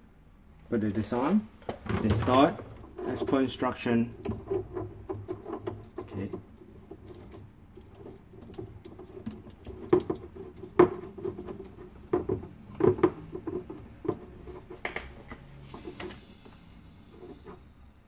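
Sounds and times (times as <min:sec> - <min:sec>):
plastic valve clicks and scrapes: 0:04.1 - 0:16.3.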